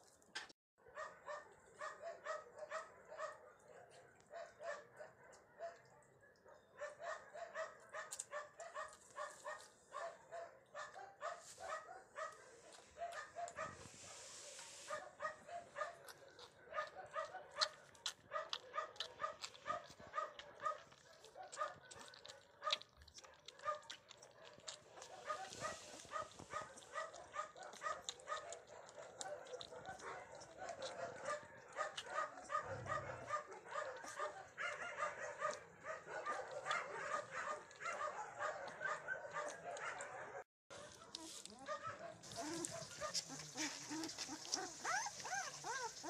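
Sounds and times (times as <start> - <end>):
puppies squeaking and whining: 42.2 - 46.0.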